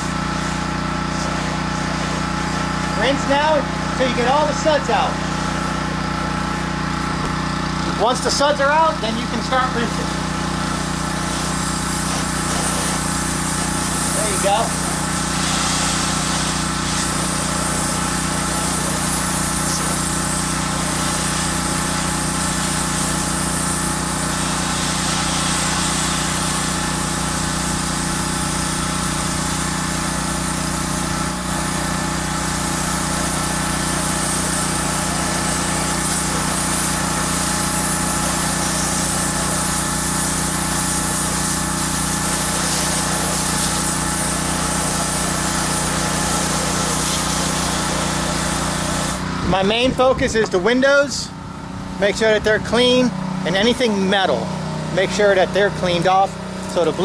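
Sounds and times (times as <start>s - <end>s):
water spraying hiss: 0.0s - 3.4s, 7.8s - 49.3s
pressure washer engine drone: 0.0s - 57.0s.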